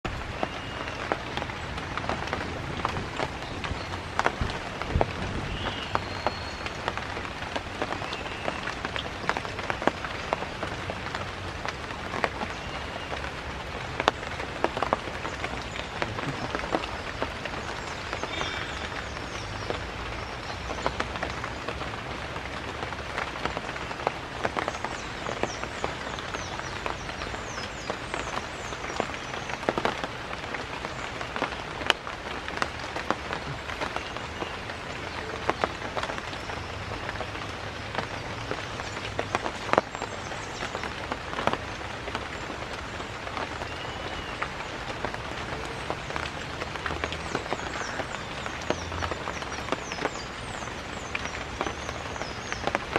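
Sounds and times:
rain pattering on leaves: 0.0 - 52.9
sharp raindrop hits: 0.0 - 52.9.

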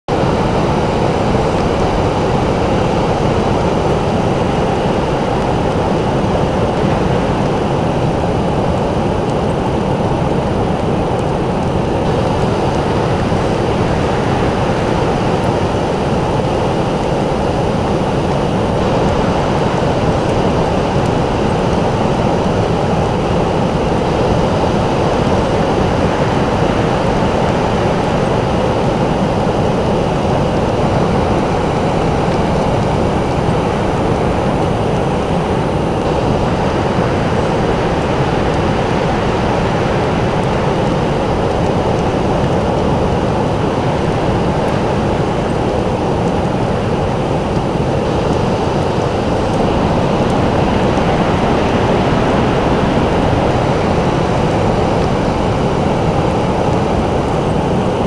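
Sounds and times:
surf breaking on beach: 0.1 - 58.0.

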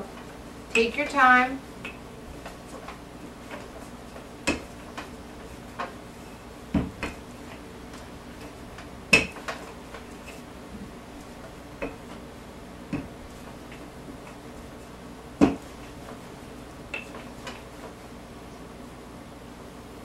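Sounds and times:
rolling pin knocking on board: 4.4 - 5.1, 6.7 - 7.2, 12.9 - 13.8, 15.4 - 15.8.

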